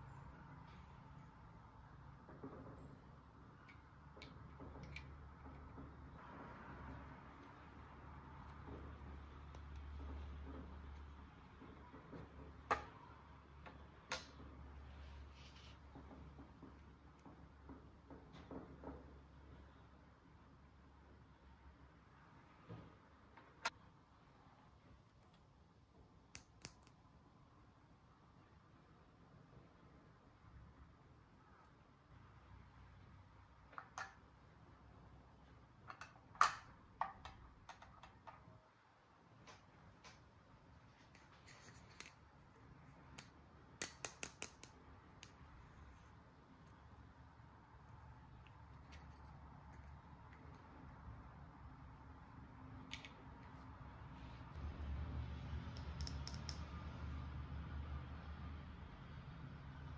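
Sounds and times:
toy pieces clicking and tapping: 43.1 - 45.4, 55.7 - 56.6.

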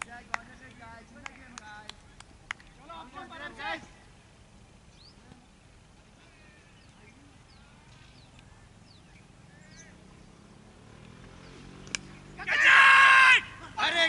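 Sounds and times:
faint bird chirps: 4.9 - 10.6.

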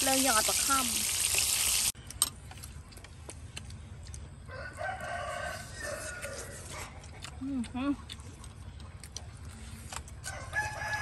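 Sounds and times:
rooster crowing: 4.5 - 6.7, 10.2 - 11.0.

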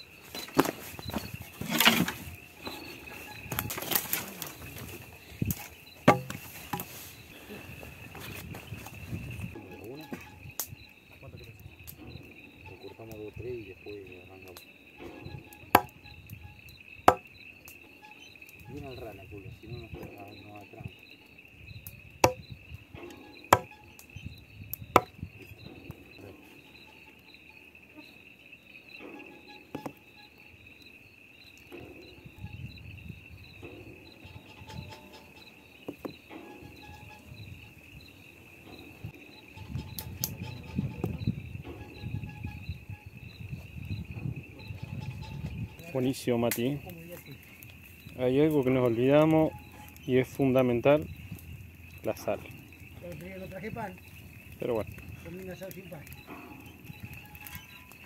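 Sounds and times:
twigs cracking: 0.0 - 9.4
crickets chirring: 0.0 - 58.0
insect trill: 0.0 - 58.0
hatchet chopping on wooden board: 6.1 - 6.4.

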